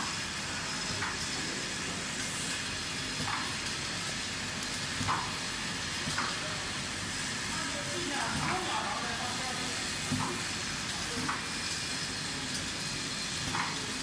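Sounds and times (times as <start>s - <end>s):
machine hiss: 0.0s - 14.0s
machine clacks: 13.4s - 13.9s.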